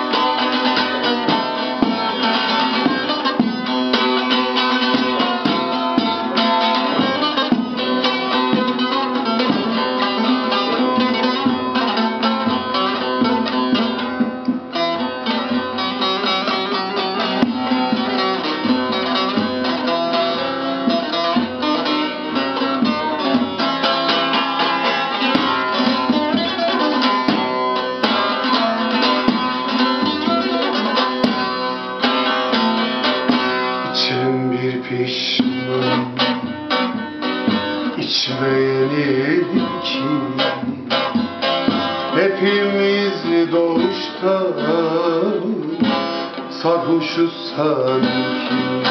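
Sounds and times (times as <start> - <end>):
long-necked lute picked rapidly: 0.0 - 48.9
man singing: 33.8 - 36.6, 37.8 - 41.0, 42.0 - 48.9.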